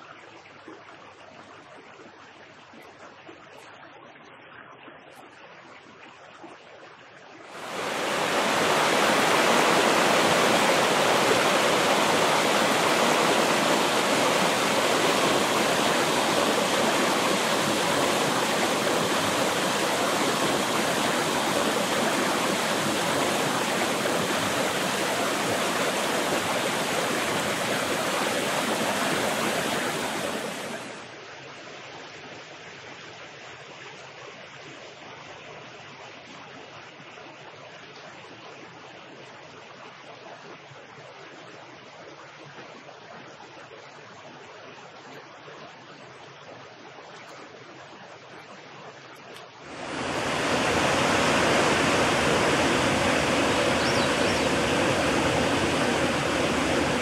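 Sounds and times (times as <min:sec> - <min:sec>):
waterfall rushing: 0:07.5 - 0:31.1, 0:49.6 - 0:57.0
creek running over rocks: 0:07.5 - 0:31.2, 0:47.0 - 0:57.0.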